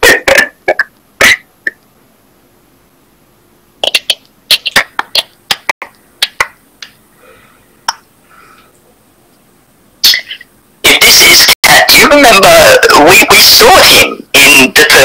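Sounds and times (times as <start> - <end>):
sharp clicks and smacks: 3.8 - 7.0.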